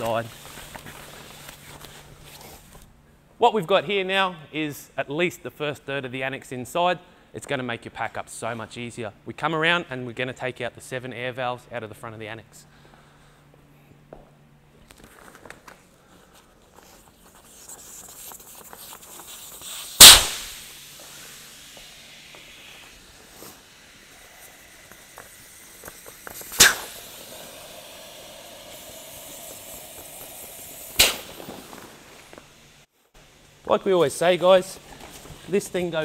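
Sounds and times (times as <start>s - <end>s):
hiss of escaping air: 18.3s - 32.9s
air valve popping open: 19.6s - 32.5s.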